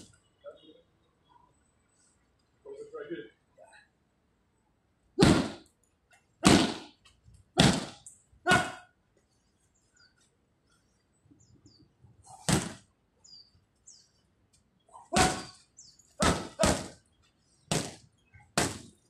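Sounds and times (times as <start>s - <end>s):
gloved strikes on pads: 6.4s - 6.8s, 7.6s - 8.0s, 12.5s - 12.8s, 15.2s - 15.5s, 16.2s - 17.0s, 17.7s - 18.0s, 18.6s - 18.9s.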